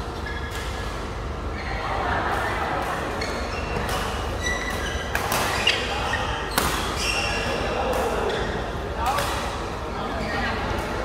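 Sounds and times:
shoes squeaking on court: 0.1s - 0.8s, 3.1s - 8.6s.

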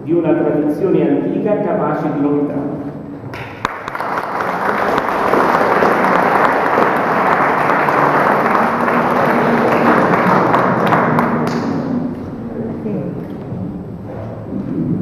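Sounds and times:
audience applauding: 3.3s - 12.2s.

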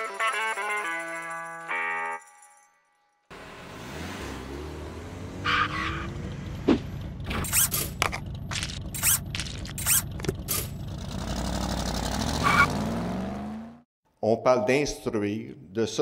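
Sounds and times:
cartoon car engine running: 3.3s - 13.8s
sharp squeals and clicks: 7.2s - 10.8s.

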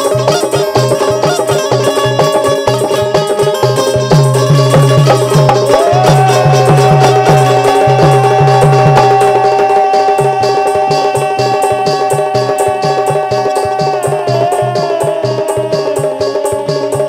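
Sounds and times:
drum beats: 0.0s - 17.0s
harmonium drone: 0.0s - 17.0s
man singing a long note: 5.7s - 17.0s.

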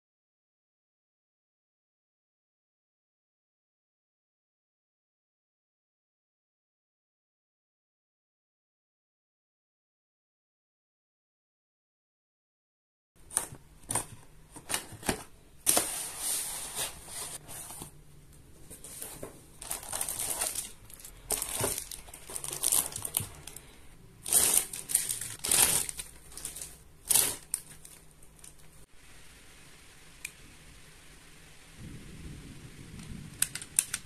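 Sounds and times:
plastic wrapping crinkling: 13.2s - 18.0s, 18.6s - 28.9s.

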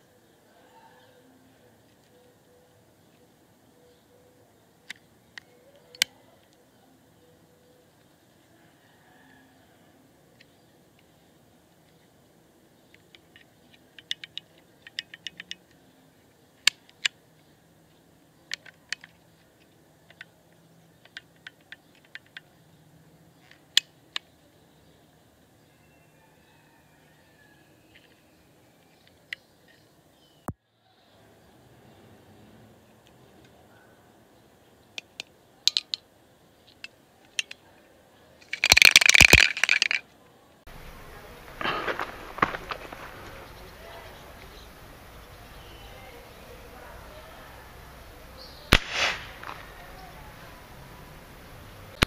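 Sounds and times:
pellet pistol mechanism clicks: 35.0s - 36.0s, 48.7s - 49.6s
light handling clicks: 36.7s - 37.6s
aerosol can rattling: 38.5s - 40.0s.

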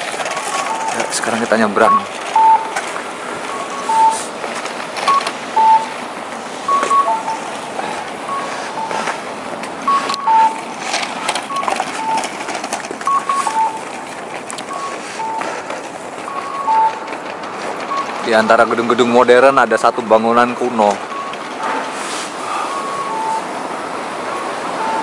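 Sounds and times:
street noise hiss: 0.0s - 25.0s
crossing signal two-note beeps: 1.8s - 2.8s, 3.5s - 4.3s, 5.0s - 6.0s, 6.7s - 7.5s, 8.3s - 9.1s, 9.8s - 10.6s, 11.5s - 12.3s, 13.0s - 13.8s, 14.7s - 15.6s, 16.3s - 17.0s, 22.6s - 23.5s, 24.3s - 25.0s
clicks: 6.7s - 18.3s.

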